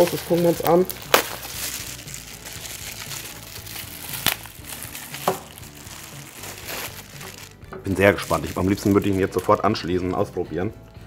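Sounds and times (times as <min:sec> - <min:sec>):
plastic packaging crinkling: 0:00.0 - 0:09.8.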